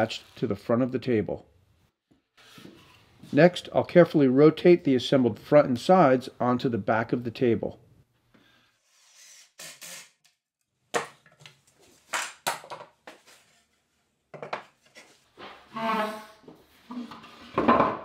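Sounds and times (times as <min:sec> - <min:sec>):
scraping squeak: 0:15.7 - 0:16.4.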